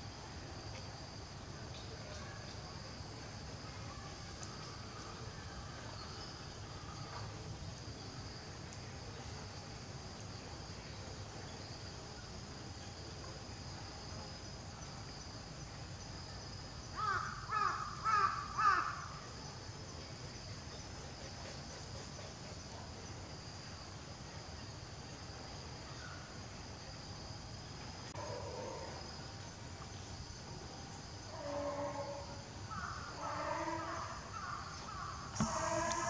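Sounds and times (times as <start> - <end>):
insects chirring: 0.0 - 36.0
crow cawing: 17.0 - 19.0.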